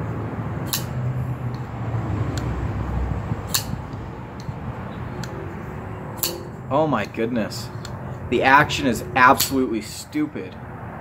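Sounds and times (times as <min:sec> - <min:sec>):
low wind rumble: 0:00.0 - 0:11.0
folding knife blade clicking: 0:00.7 - 0:01.7, 0:03.5 - 0:04.6, 0:06.2 - 0:06.6, 0:07.7 - 0:08.0, 0:09.4 - 0:09.6.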